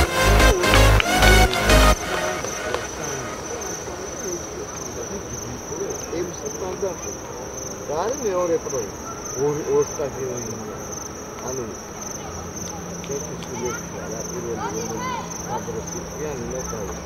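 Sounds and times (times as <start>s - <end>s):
players shouting: 0.0s - 7.3s, 12.4s - 17.0s
crickets trilling: 2.0s - 17.0s.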